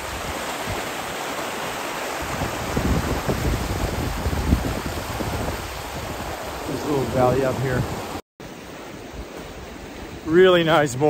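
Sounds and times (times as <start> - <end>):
stream rushing over rocks: 0.0 - 11.0
wind buffeting microphone: 2.1 - 8.2.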